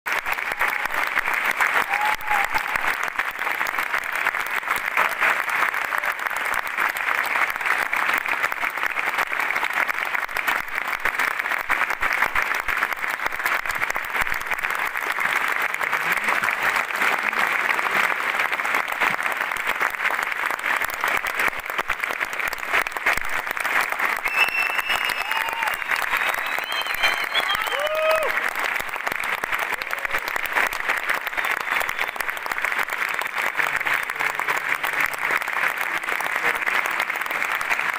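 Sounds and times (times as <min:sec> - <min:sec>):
audience applause: 0:00.0 - 0:37.9.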